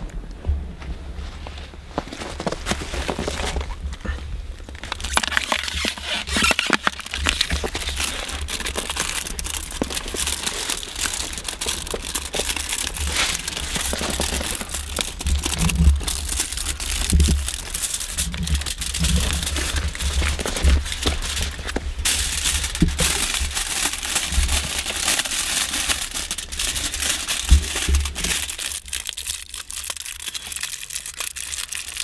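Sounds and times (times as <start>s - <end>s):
crackling and rustling: 0.0s - 32.0s.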